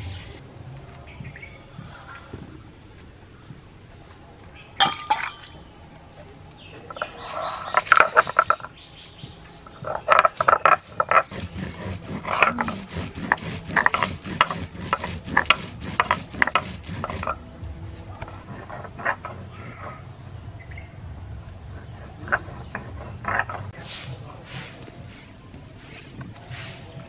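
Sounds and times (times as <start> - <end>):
high insect chirr: 0.0 - 27.0
stone crushing dried chillies: 9.9 - 17.4.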